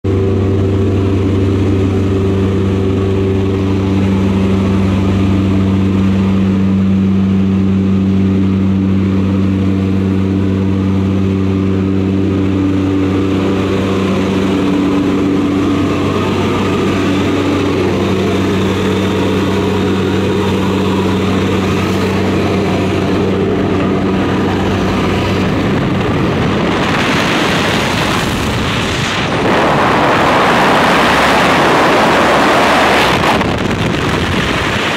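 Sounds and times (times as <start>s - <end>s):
propeller aircraft engines droning: 0.0s - 34.9s
rushing wind at open door: 0.0s - 34.9s.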